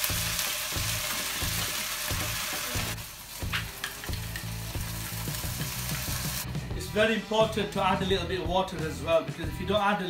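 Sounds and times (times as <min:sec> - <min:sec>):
noodles sizzling in oil: 0:00.0 - 0:06.5.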